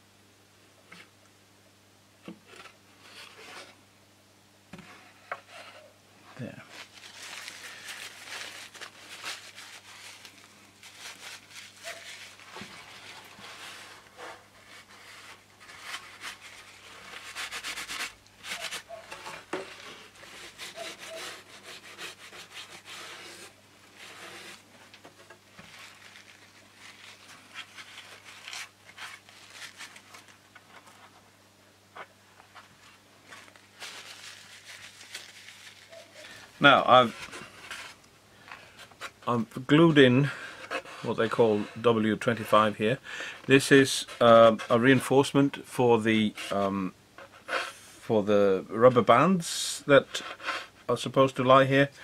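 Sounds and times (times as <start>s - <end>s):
tissue rubbing on wood: 6.6s - 31.2s, 32.5s - 38.0s.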